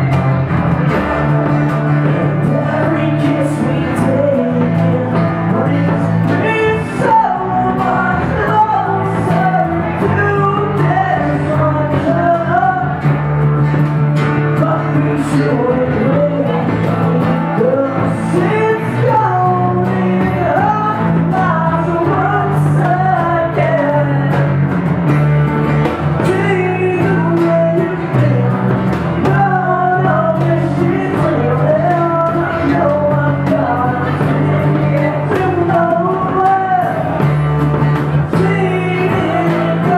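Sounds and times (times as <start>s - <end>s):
strummed acoustic guitars: 0.0s - 39.9s
person singing lead: 26.2s - 37.2s.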